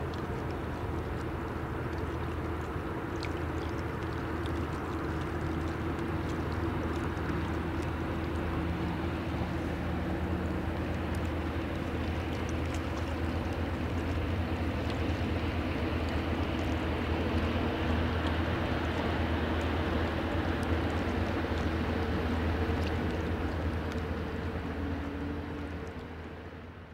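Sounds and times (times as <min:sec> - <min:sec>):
rushing water wash: 0:00.0 - 0:26.9
ship diesel engine droning: 0:07.5 - 0:26.9.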